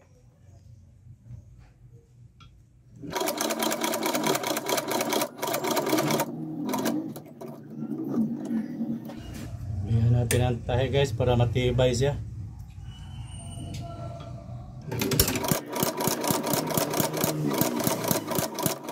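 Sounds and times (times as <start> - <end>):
sewing machine stitching: 3.0 - 9.2, 14.9 - 18.9.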